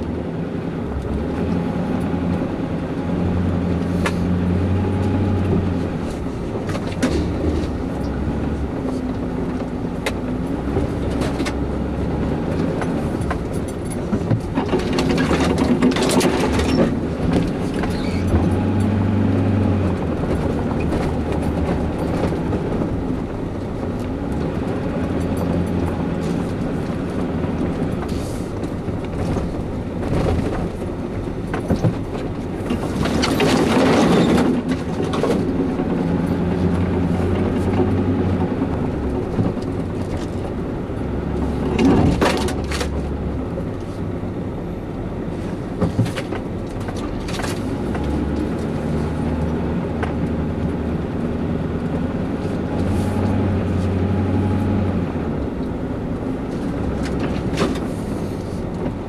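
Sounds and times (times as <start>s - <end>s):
low engine drone: 0.0s - 59.0s
road rumble: 0.0s - 59.0s
clicks and rattles: 12.5s - 19.0s, 23.9s - 40.6s.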